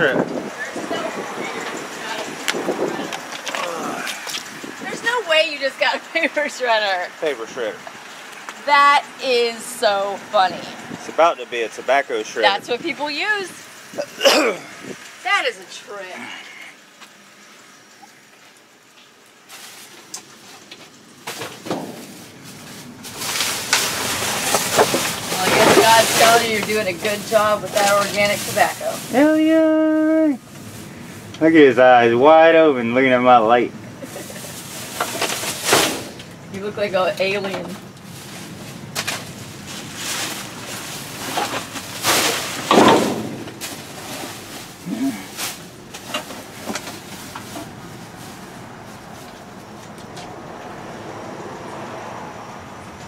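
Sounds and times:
plastic bags crinkling in dumpster: 19.4s - 20.6s, 21.2s - 29.5s, 34.0s - 36.2s, 38.1s - 49.8s.

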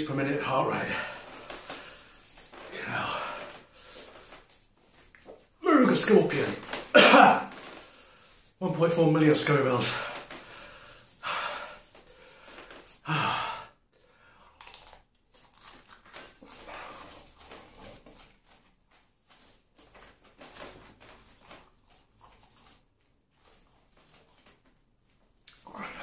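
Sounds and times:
man breathing unevenly and sighing: 0.8s - 4.6s, 9.8s - 14.6s
man groaning in pain: 13.1s - 13.7s.

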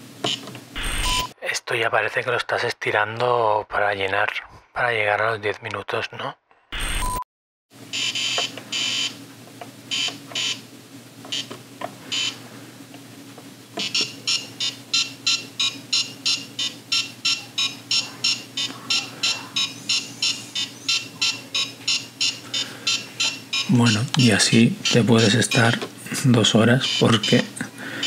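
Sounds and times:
high electronic beeps: 13.8s - 25.8s, 26.8s - 27.5s.

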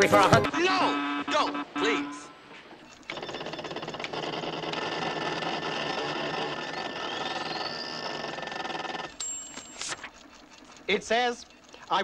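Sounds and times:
steady electronic tones: 0.0s - 12.0s
fast mechanical clatter: 2.8s - 12.0s
rising whistle: 6.8s - 8.4s.

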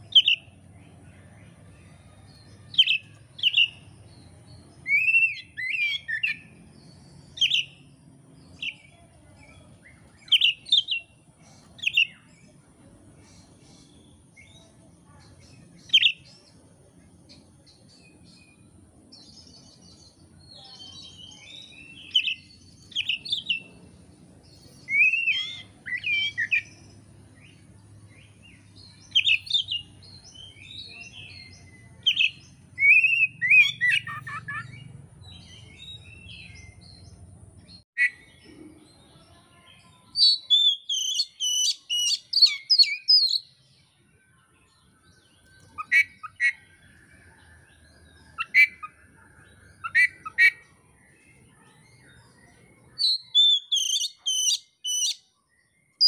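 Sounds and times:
songbird whistling phrases: 0.1s - 0.5s, 2.7s - 3.9s, 4.8s - 6.6s, 7.3s - 7.9s, 11.8s - 12.3s, 15.9s - 16.3s, 20.4s - 23.7s, 24.7s - 26.8s, 29.0s - 37.0s, 40.1s - 43.6s, 45.2s - 51.2s, 52.0s - 56.0s.

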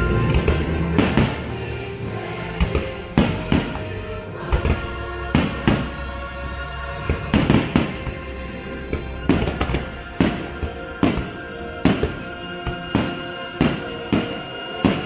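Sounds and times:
soundtrack music: 0.0s - 15.0s
fireworks booming: 0.2s - 1.5s, 2.6s - 3.9s, 4.5s - 6.1s, 7.1s - 8.2s, 8.9s - 15.0s.

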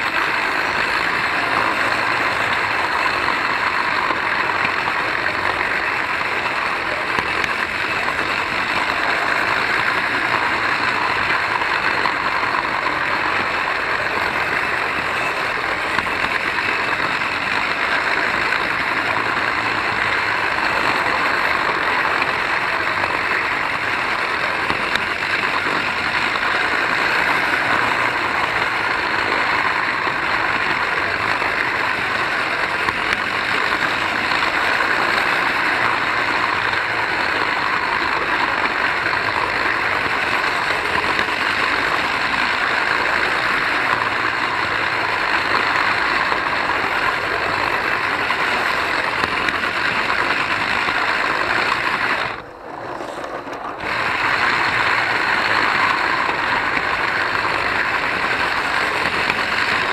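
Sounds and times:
model train motor whirring: 0.0s - 59.9s.

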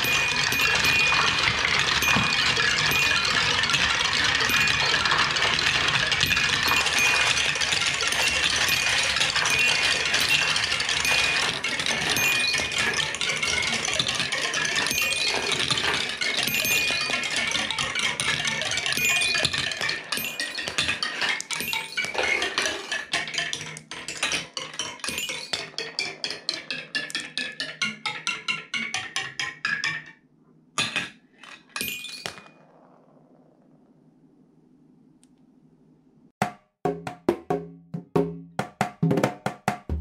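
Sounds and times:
marbles rattling through marble run: 0.0s - 30.1s.

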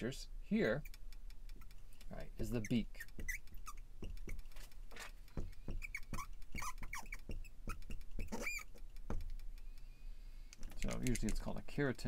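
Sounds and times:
marker squeaking on glass: 2.4s - 9.9s.

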